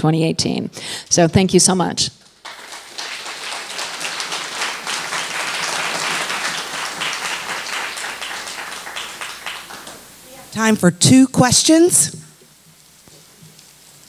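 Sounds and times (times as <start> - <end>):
audience applauding: 2.4 - 10.2.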